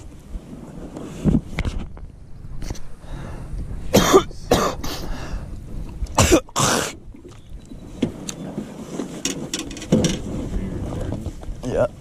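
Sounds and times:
man coughing: 3.9s - 5.1s, 6.2s - 7.0s.

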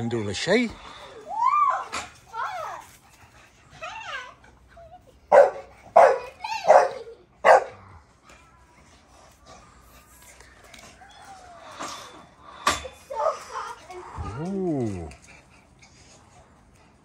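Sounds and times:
dog barking: 5.3s - 7.8s.

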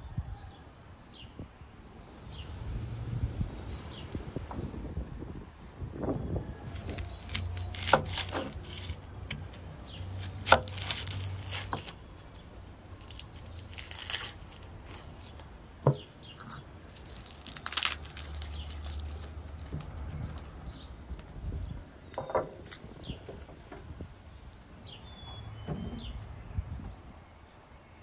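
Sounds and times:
onion skin scraping and tearing: 6.6s - 15.5s, 16.3s - 21.2s
garlic skins crackling: 6.6s - 21.3s.

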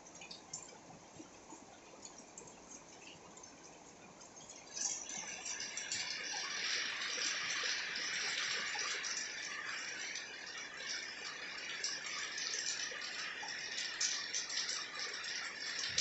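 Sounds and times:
heavy rain on concrete: 5.8s - 16.0s.

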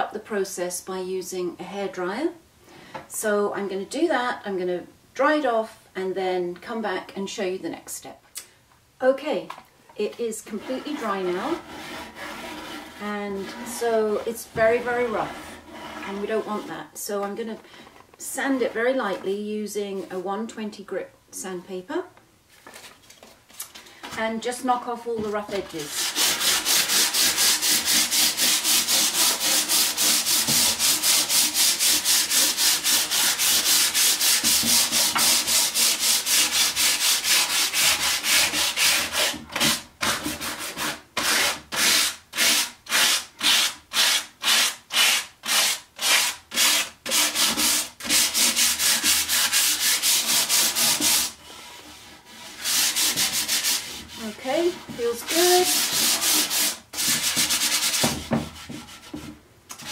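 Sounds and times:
sandpaper rubbing on drywall: 10.5s - 14.0s, 25.3s - 59.9s.

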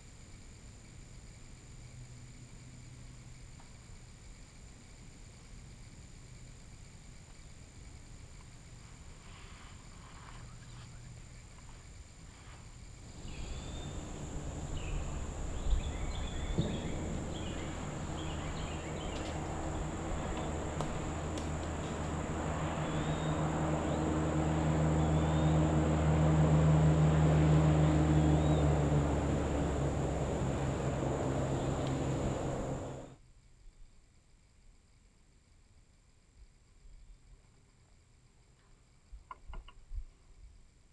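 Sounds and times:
distant engine hum: 8.2s - 33.2s
birds chirping: 13.1s - 33.2s.

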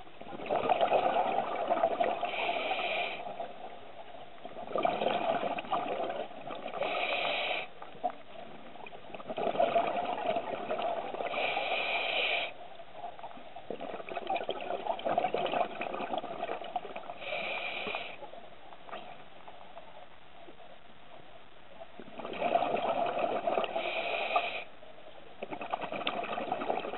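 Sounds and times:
exhaled bubbles gurgling: 0.0s - 19.3s, 21.9s - 24.7s, 25.4s - 26.9s
regulator inhalation hiss: 2.3s - 3.4s, 6.8s - 7.8s, 11.3s - 12.6s, 17.2s - 18.2s, 23.7s - 24.7s.

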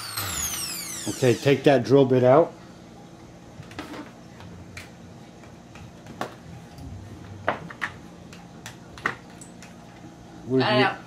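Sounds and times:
drill bits clicking: 0.0s - 1.2s.

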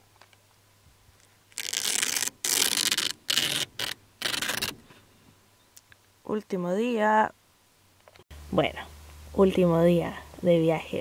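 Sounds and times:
rough scraping bursts: 1.5s - 4.9s.

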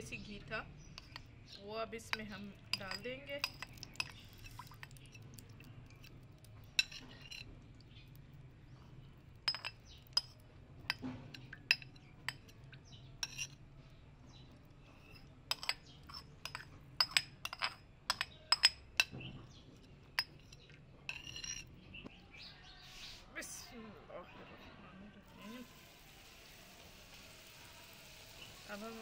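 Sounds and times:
metal and glass utensils clinking: 1.0s - 1.3s, 2.0s - 7.5s, 9.4s - 13.6s, 15.0s - 19.2s, 19.9s - 21.7s.

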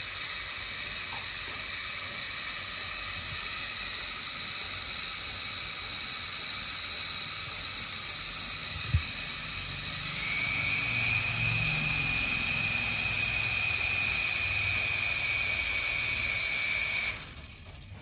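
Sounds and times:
rotors winding down: 0.0s - 18.0s
toy helicopter rotors whining: 0.0s - 18.0s.

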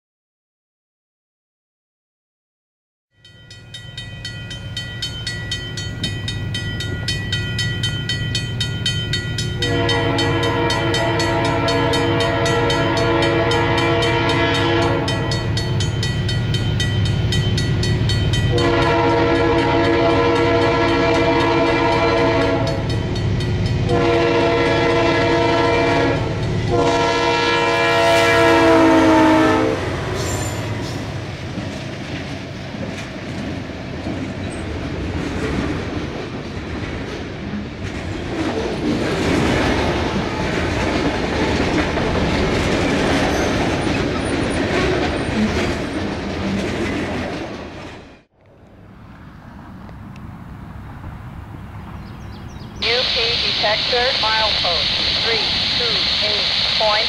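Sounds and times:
train passing: 3.2s - 57.0s
diesel locomotive engine rumbling: 3.4s - 57.0s
train horn blasts: 9.6s - 15.8s, 18.5s - 22.9s, 23.8s - 30.7s.

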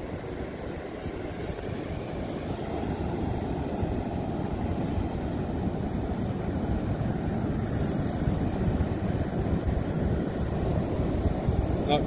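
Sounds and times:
surf washing on beach: 0.0s - 12.0s
wind rumbling on microphone: 0.0s - 12.0s.

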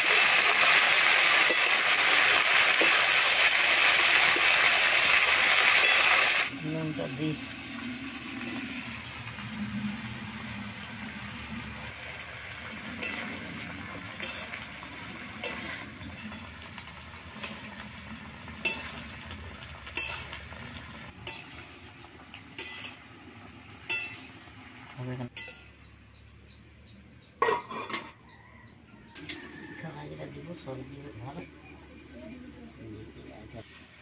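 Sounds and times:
metal spatula scraping a wok: 12.8s - 16.7s, 18.5s - 21.9s, 22.6s - 23.1s, 23.9s - 24.5s, 25.3s - 25.9s, 27.4s - 28.3s
metal lid clanking on pan: 12.9s - 13.4s, 20.0s - 20.4s, 22.6s - 23.0s, 23.9s - 24.3s, 27.4s - 28.2s.

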